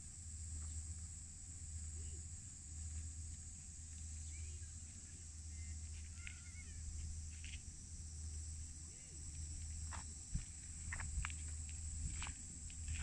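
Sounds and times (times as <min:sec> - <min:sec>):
low steady rumble: 0:00.0 - 0:13.0
high-pitched insect chirring: 0:04.2 - 0:07.7.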